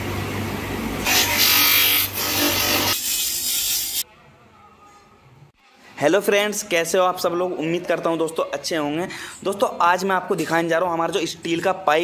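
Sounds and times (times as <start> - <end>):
hissing rub of buff on steel: 2.4 - 4.0.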